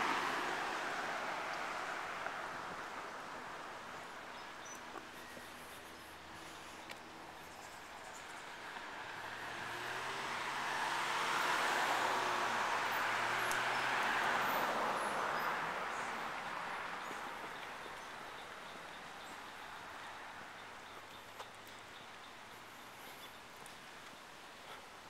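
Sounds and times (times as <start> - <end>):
vehicle passing by: 0.0 - 3.8, 6.2 - 20.6.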